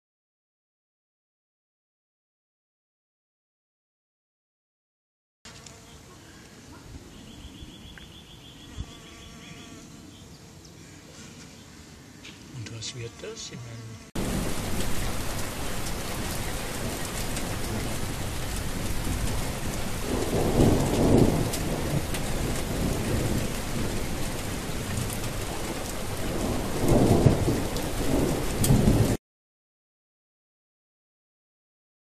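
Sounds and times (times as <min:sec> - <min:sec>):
rain hissing: 0:12.5 - 0:29.2
thunder rolling: 0:14.2 - 0:29.2.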